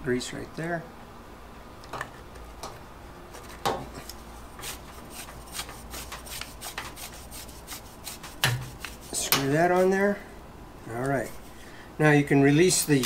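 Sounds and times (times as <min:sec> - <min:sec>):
threads scraping and clicking: 0:03.4 - 0:10.0.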